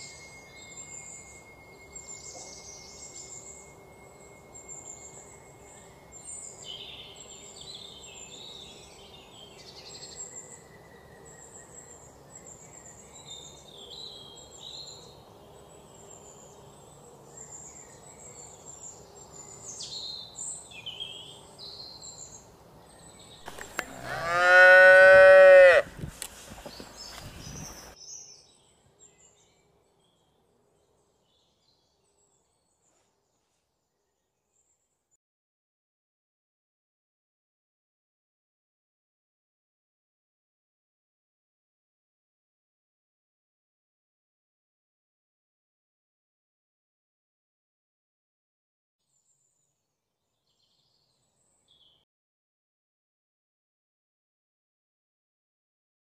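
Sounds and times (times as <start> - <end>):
faint bird chirping: 0.0 - 24.2, 26.5 - 35.2
cow mooing: 23.8 - 25.9.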